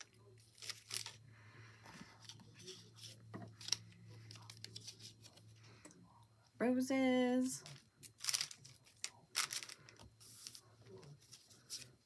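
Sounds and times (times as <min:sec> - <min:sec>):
faint low hum: 0:00.0 - 0:12.0
paper pieces rustling: 0:07.7 - 0:12.0.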